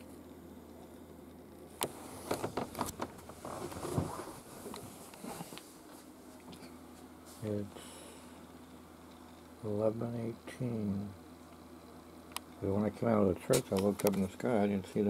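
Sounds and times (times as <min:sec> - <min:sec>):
steady low hum: 0:00.0 - 0:15.0
rustling handling noise: 0:01.8 - 0:07.5.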